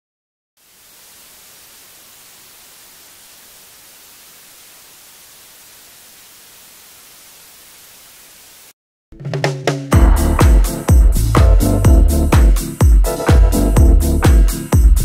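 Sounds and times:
static hiss: 0.6s - 8.8s.

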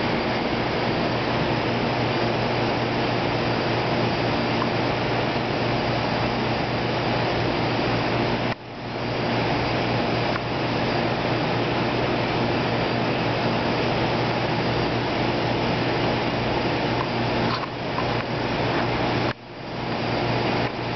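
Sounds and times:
machine hum with hiss: 0.0s - 20.9s.

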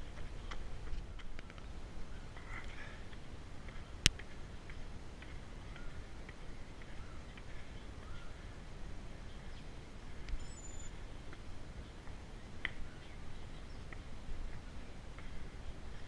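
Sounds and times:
bird chirps: 10.3s - 11.0s.

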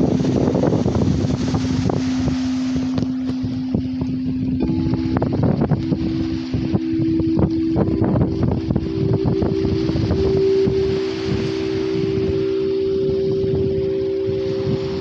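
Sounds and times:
singing bowl tone: 0.0s - 15.0s
wind buffeting the microphone: 0.0s - 15.0s.

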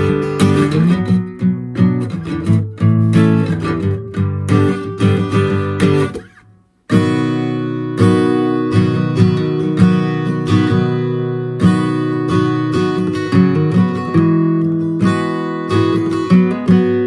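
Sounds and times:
acoustic guitar strumming: 0.0s - 17.0s.

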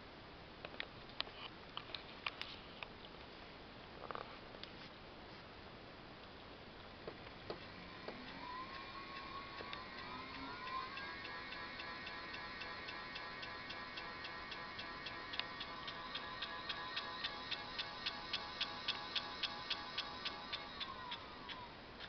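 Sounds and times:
regular ticking: 7.4s - 21.8s
electric motor whine: 7.5s - 21.8s.

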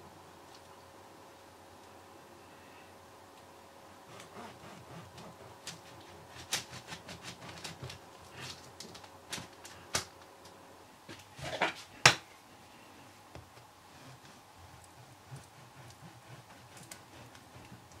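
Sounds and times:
knife sawing through crusty bread: 4.1s - 7.9s, 15.0s - 18.0s.

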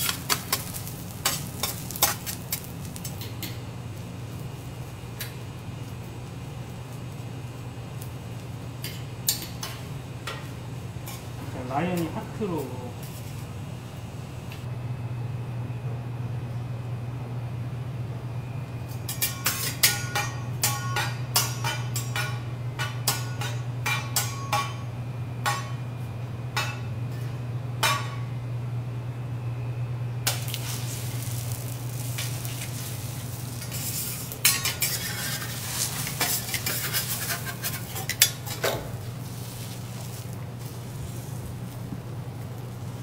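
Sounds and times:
egg sizzling on griddle: 0.0s - 9.8s, 30.2s - 43.0s
steady low hum: 0.0s - 43.0s.

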